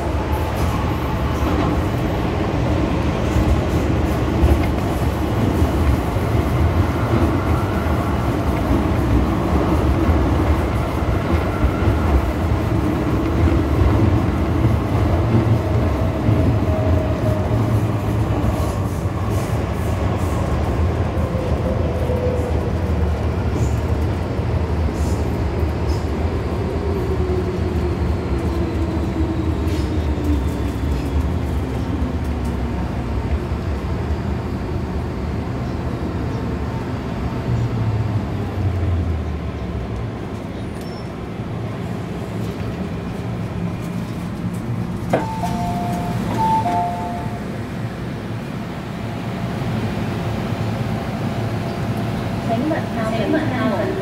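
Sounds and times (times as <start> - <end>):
train rumbling on track: 0.0 - 54.0.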